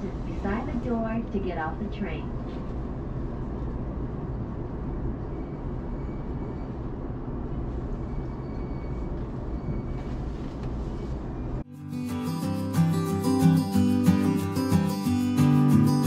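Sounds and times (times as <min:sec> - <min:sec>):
train rumbling: 0:00.0 - 0:11.7.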